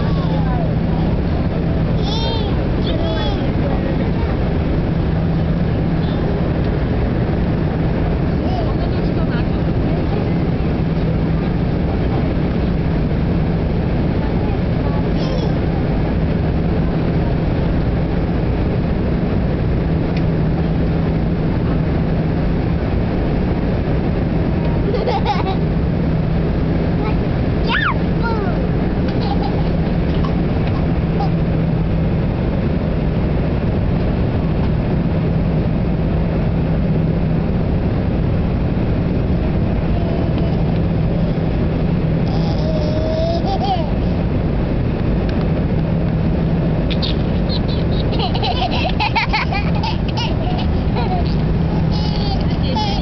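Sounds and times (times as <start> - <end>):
airliner cabin engine rush: 0.0 - 53.0
low hum: 0.0 - 53.0
baby's voice: 2.0 - 3.5, 14.5 - 15.7, 27.0 - 28.6, 39.9 - 41.5, 42.2 - 44.2, 50.0 - 53.0.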